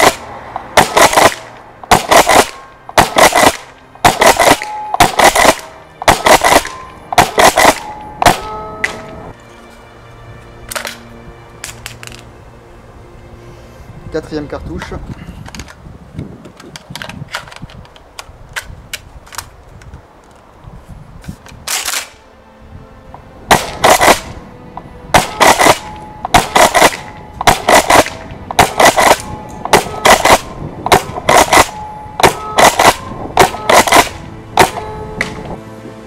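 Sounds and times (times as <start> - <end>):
airsoft shotgun firing cracks: 0.0 - 9.1, 21.7 - 22.2, 23.5 - 24.4, 25.1 - 35.4
gun handling clicks: 10.6 - 12.3, 15.1 - 20.4, 21.4 - 22.2.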